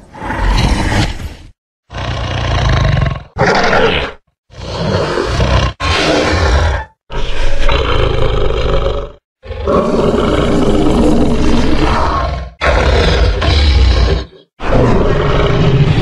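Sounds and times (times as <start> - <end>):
dinosaur roars: 1.9 - 16.0.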